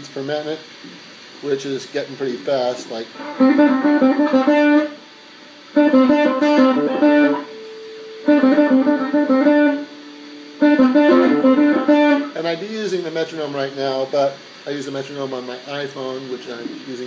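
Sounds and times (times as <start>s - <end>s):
electric guitar picked notes: 3.2s - 12.4s.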